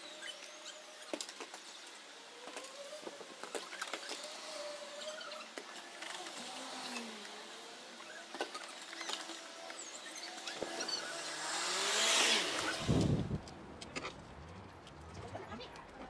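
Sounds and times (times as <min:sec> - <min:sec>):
vehicle passing by: 0:11.0 - 0:13.4.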